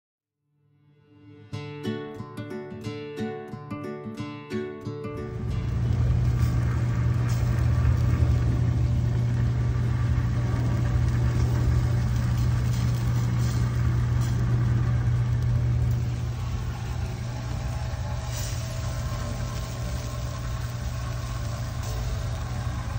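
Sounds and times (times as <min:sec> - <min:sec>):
motor humming: 0:05.3 - 0:22.9
hiss: 0:11.3 - 0:15.2, 0:15.8 - 0:22.9.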